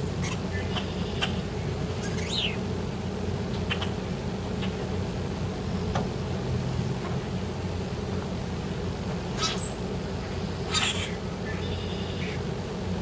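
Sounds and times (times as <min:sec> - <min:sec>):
blackbirds chirping: 0:00.0 - 0:02.8, 0:05.6 - 0:06.1, 0:09.3 - 0:12.6.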